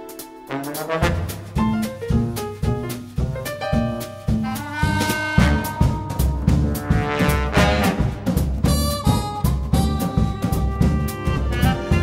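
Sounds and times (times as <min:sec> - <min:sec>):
drum kit hits: 0:00.0 - 0:12.0
sustained brass chords: 0:00.4 - 0:01.6, 0:04.4 - 0:12.0.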